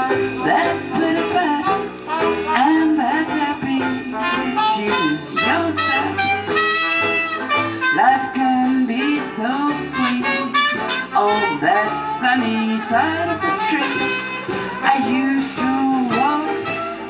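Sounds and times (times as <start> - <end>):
jazz band playing: 0.0 - 17.0.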